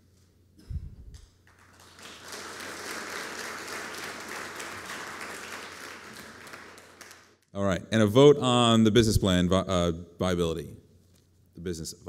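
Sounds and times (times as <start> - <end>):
audience applauding: 1.4 - 7.4.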